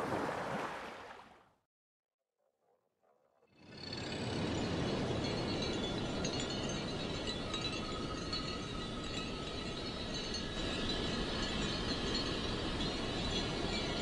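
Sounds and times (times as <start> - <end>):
surf washing: 0.0 - 1.3
faint high ringing tones: 3.7 - 14.0.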